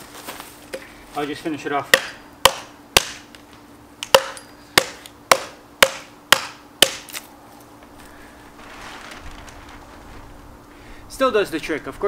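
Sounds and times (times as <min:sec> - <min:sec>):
hatchet chopping log: 0:01.9 - 0:03.3, 0:04.0 - 0:07.2.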